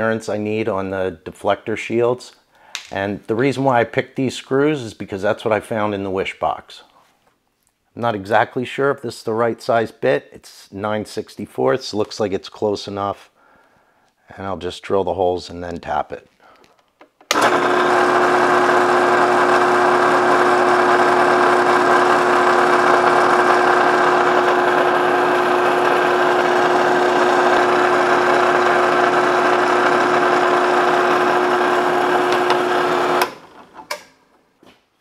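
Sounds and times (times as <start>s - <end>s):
drill press motor whine: 17.3s - 33.8s.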